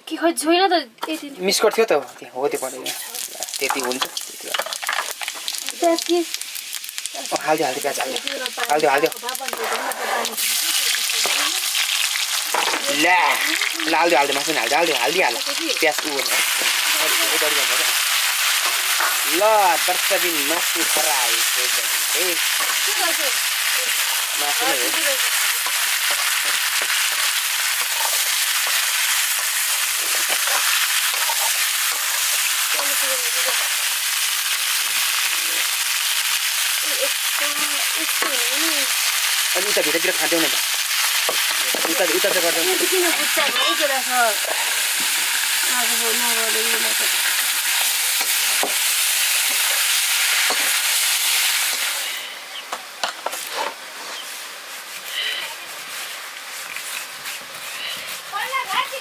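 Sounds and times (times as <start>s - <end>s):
food sizzling in a wok: 0.2s - 59.0s
spatula scraping a pan: 23.9s - 33.9s.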